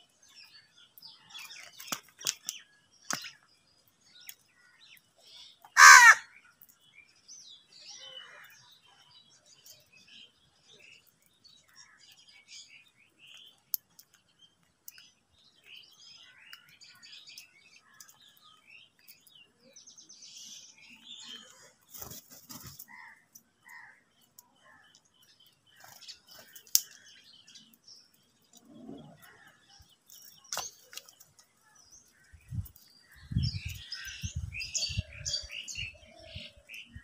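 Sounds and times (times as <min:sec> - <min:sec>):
birds chirping and calling: 0:00.0 - 0:37.0.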